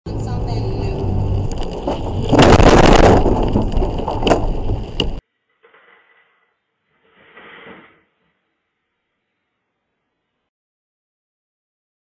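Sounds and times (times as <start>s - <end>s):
debris crashing on windshield: 1.5s - 5.2s.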